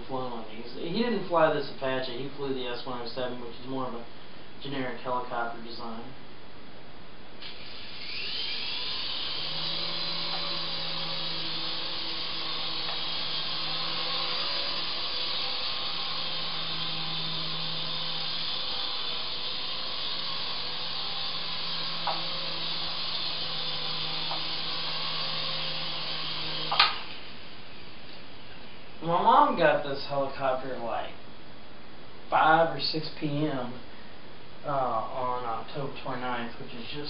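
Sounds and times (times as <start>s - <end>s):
toy helicopter rotors whirring: 7.4s - 27.4s.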